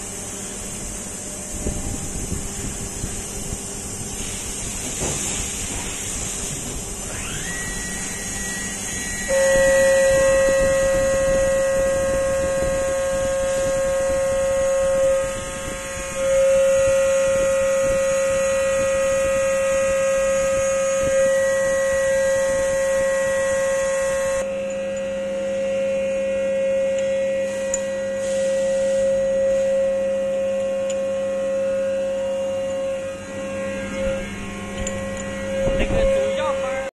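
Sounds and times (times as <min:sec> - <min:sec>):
milling machine cutter whine: 0:00.0 - 0:36.9
coolant spray hiss: 0:00.5 - 0:07.0, 0:28.2 - 0:28.6.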